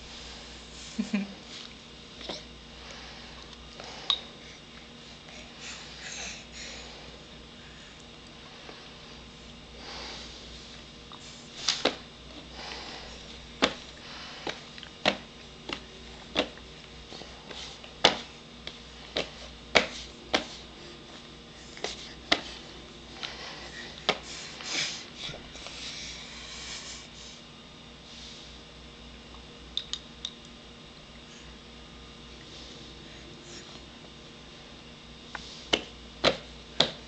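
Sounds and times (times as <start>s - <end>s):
baby breathing and sniffing: 19.3s - 27.4s.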